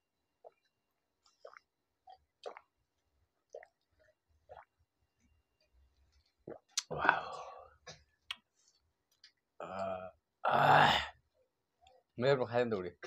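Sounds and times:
mouth eating and drinking sounds: 6.5 - 7.6, 9.6 - 11.1.

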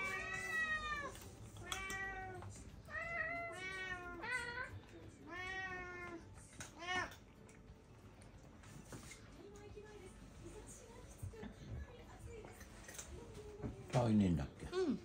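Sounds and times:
cat meowing: 0.0 - 7.3.

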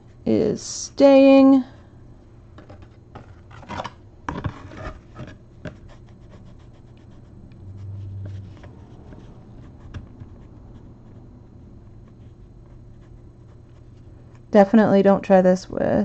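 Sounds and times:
brief low hum: 6.6 - 12.9.

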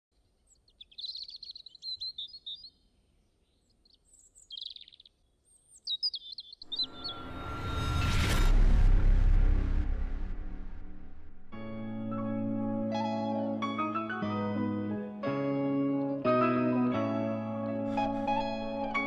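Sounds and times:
small birds chirping: 0.2 - 7.2
rising swell of noise: 6.7 - 12.9.

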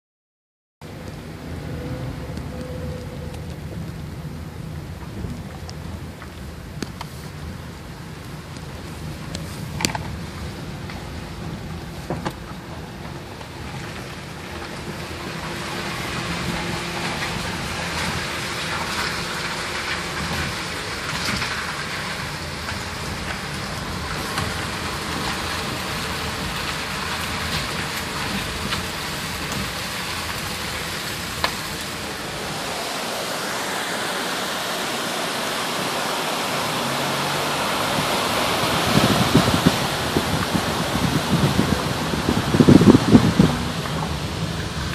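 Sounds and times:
low car rumble: 0.8 - 44.9
tyres hissing on wet road: 0.9 - 44.9
creek rushing: 8.5 - 28.2, 28.8 - 44.9.

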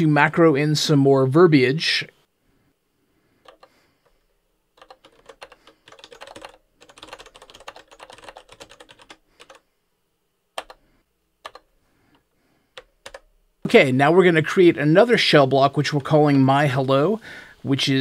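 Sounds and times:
computer keyboard typing: 3.4 - 9.6, 10.6 - 10.8, 11.4 - 13.3.

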